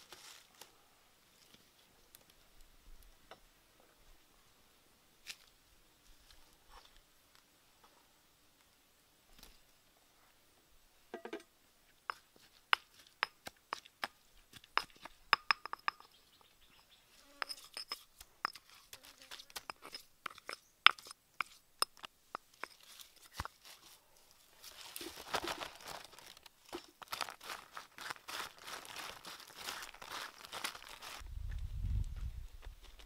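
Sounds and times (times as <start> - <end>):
crinkling rustle of mixing: 0.0 - 0.8, 22.6 - 31.2
pestle knocking in mortar: 12.1 - 16.2, 19.5 - 22.8.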